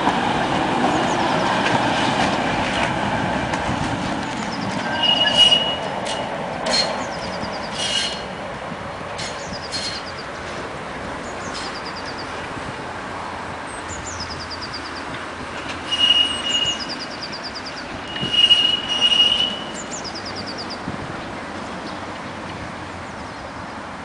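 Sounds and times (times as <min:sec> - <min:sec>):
tram rumbling on rails: 0:00.0 - 0:24.0
tram wheels squealing: 0:04.2 - 0:08.5, 0:09.1 - 0:10.6, 0:11.2 - 0:12.5, 0:13.7 - 0:20.9.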